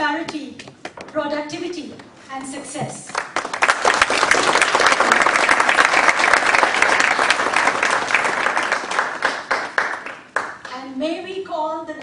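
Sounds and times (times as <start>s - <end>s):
audience applauding: 3.1s - 10.7s.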